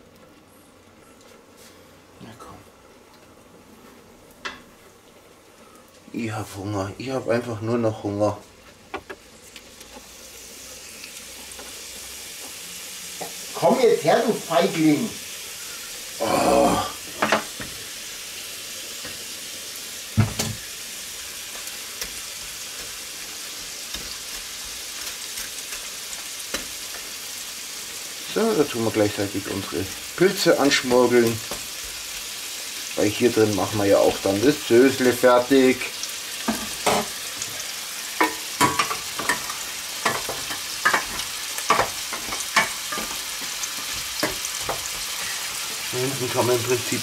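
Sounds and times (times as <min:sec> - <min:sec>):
meat sizzling in a frying pan: 0:04.1 - 0:47.0.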